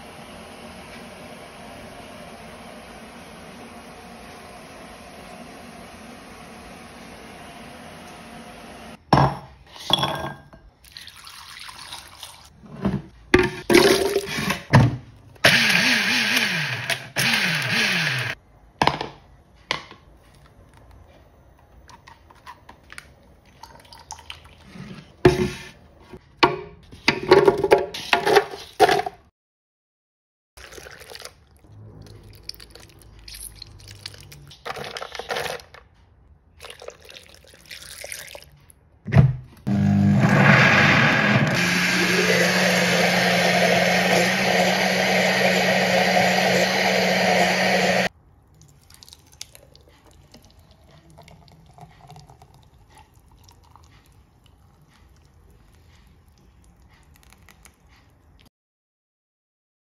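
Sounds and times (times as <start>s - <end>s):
bowls and utensils clinking: 9.2s - 10.8s
liquid pouring and splashing: 10.8s - 12.6s, 23.4s - 24.8s, 30.6s - 35.6s, 36.6s - 38.7s, 48.5s - 57.8s.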